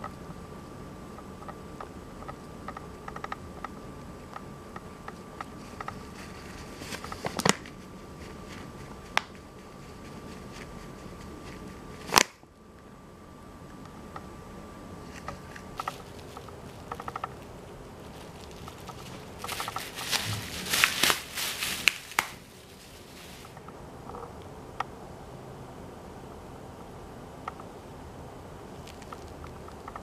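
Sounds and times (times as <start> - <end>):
rabbit nibbling: 0.0 - 12.4, 15.0 - 24.9, 28.7 - 30.0
camera rattling hum: 15.0 - 22.6
plastic bag crinkling: 15.2 - 23.6.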